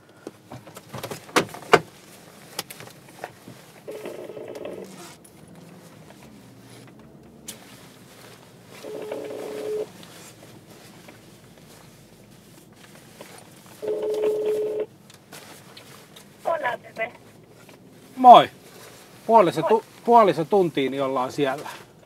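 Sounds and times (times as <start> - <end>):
telephone ringing tone: 3.9 - 5.0, 8.8 - 9.9, 13.8 - 14.9.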